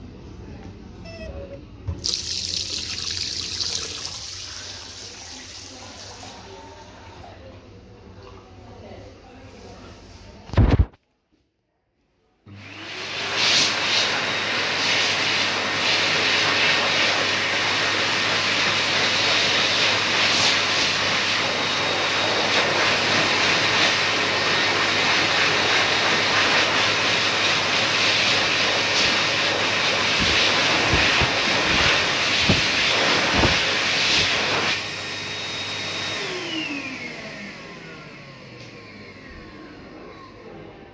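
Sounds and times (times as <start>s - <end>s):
hand dryer blowing air: 2.0s - 7.2s, 12.5s - 39.7s.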